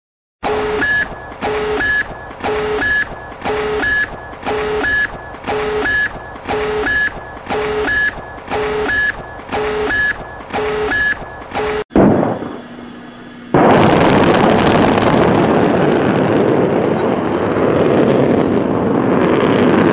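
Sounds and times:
harsh electronic countdown beep: 0.4 - 11.9.

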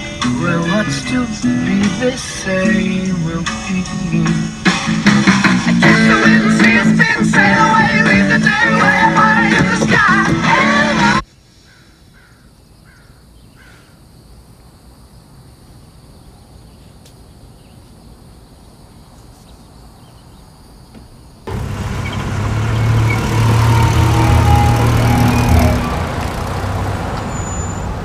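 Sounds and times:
car engine running: 4.9 - 11.2, 21.5 - 27.2
crow cawing: 11.7 - 14.0.

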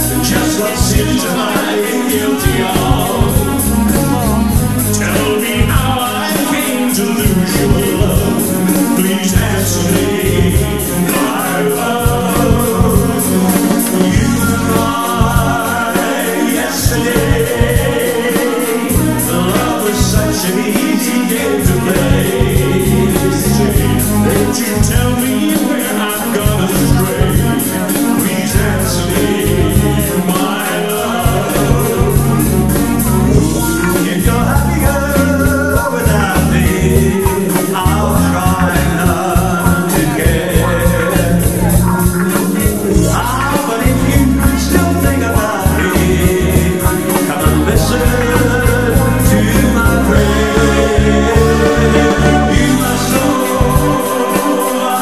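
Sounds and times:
amplified backing music: 0.0 - 55.0
men singing into microphones: 0.0 - 55.0.

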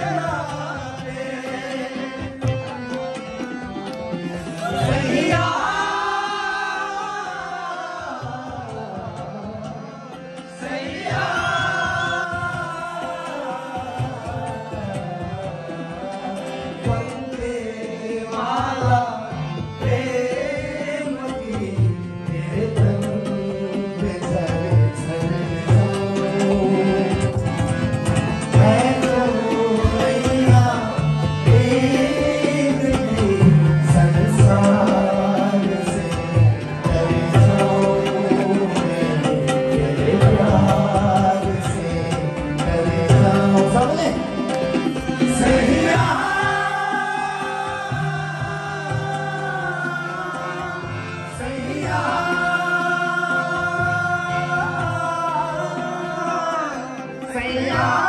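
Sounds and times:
man singing: 0.0 - 3.5, 4.5 - 58.0
harmonium: 0.0 - 58.0.

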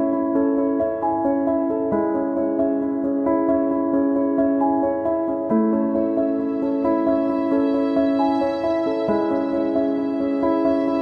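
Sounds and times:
soft instrumental background music: 4.6 - 11.0.

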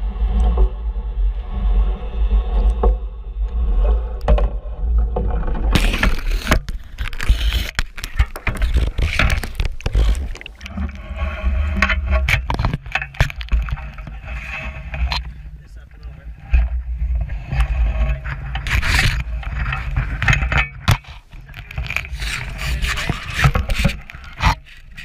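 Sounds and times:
water splashing and pouring: 5.1 - 15.3.

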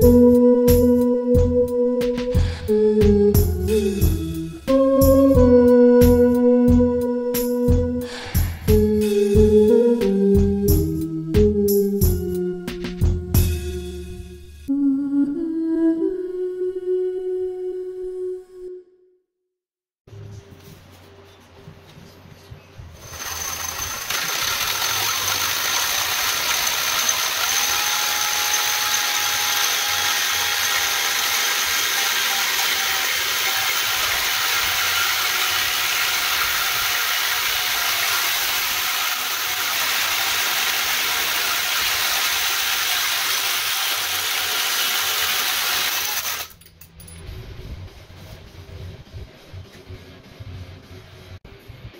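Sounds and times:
drill hole saw cutting steel: 23.0 - 46.6.

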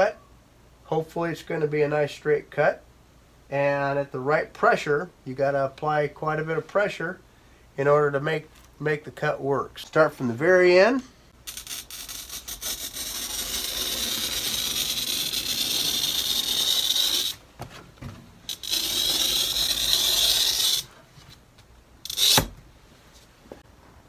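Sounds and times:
glass cutter scoring glass: 11.5 - 17.4, 18.5 - 20.9, 22.0 - 22.6.

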